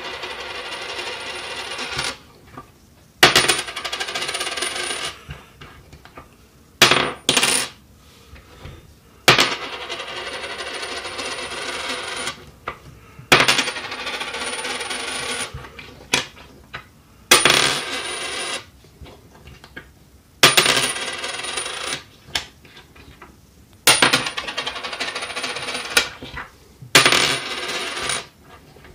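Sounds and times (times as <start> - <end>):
coin clinking on wooden table: 0.0 - 2.2, 3.2 - 5.3, 6.8 - 7.8, 9.3 - 12.4, 13.3 - 16.4, 17.3 - 18.7, 20.4 - 22.1, 23.8 - 28.4
coin spinning and rattling: 0.0 - 2.2, 3.3 - 5.2, 6.9 - 7.8, 9.4 - 12.4, 13.4 - 15.6, 17.4 - 18.7, 20.5 - 22.1, 23.9 - 26.2, 27.0 - 28.4.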